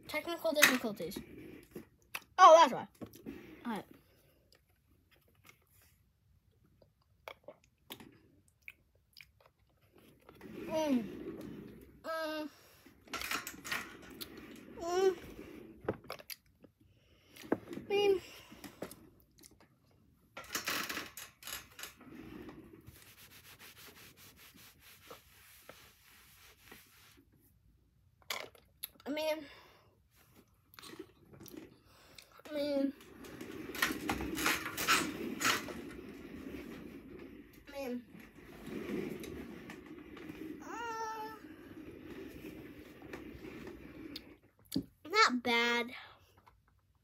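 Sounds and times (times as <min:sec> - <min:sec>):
slurping through a straw: 0:01.0 - 0:02.4, 0:03.1 - 0:04.7, 0:09.2 - 0:13.0, 0:14.0 - 0:19.7, 0:21.9 - 0:27.3, 0:30.5 - 0:44.8.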